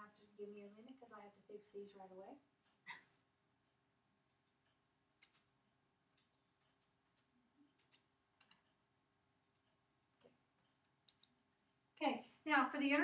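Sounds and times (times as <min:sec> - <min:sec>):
keyboard and mouse clicking: 0:04.2 - 0:05.5, 0:06.1 - 0:08.8, 0:09.4 - 0:11.4.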